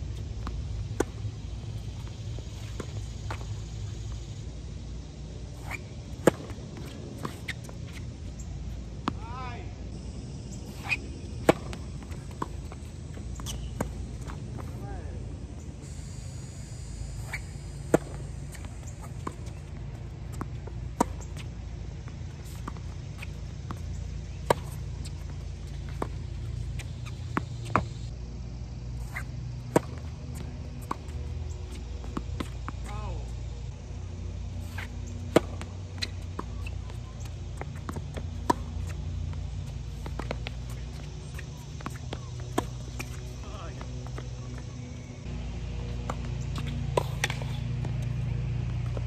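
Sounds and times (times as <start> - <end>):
low background hum: 0.0 - 49.0
low steady rumble: 0.0 - 49.0
racket hitting tennis ball: 5.6 - 9.2, 10.7 - 14.8, 17.2 - 28.0, 29.0 - 33.0, 34.6 - 49.0
racket striking tennis ball: 10.7 - 14.7, 34.6 - 36.8, 37.6 - 43.4, 45.9 - 49.0.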